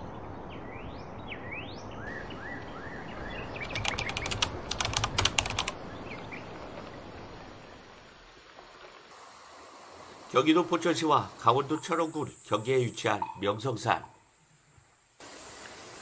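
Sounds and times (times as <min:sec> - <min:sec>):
sharp clicks: 0:03.6 - 0:05.8
background hiss: 0:03.6 - 0:16.0.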